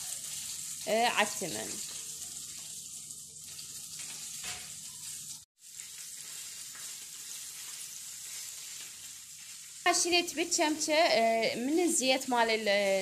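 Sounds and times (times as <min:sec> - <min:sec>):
hot oil sizzling: 0:00.0 - 0:13.0.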